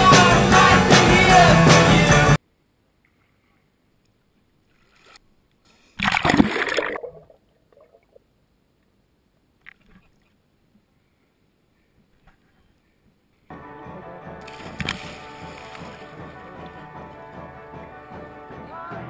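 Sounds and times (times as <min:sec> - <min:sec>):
pool water splashing: 0:06.0 - 0:08.2, 0:14.0 - 0:18.4
rush of water: 0:14.5 - 0:16.7.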